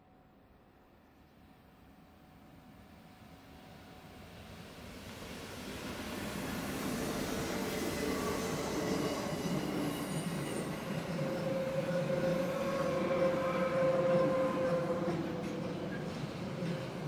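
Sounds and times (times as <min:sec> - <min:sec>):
train wheels rumbling on rail: 0:04.0 - 0:17.0.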